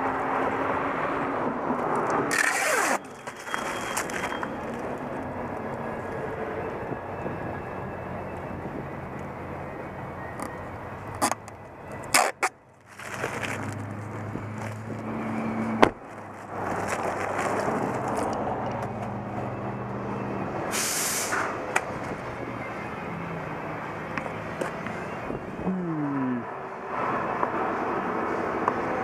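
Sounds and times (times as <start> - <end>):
short burst of hiss: 20.7 - 21.5.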